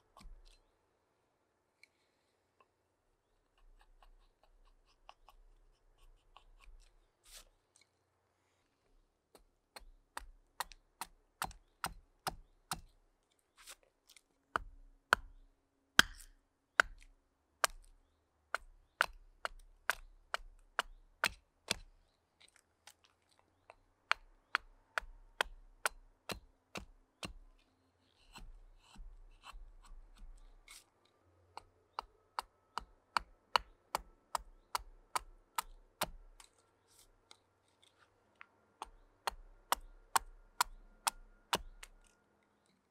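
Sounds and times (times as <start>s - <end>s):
hatchet chopping wood: 9.4s - 13.0s, 14.6s - 15.4s, 16.0s - 17.9s, 18.5s - 21.9s, 24.0s - 27.5s, 31.6s - 36.5s, 38.8s - 42.1s.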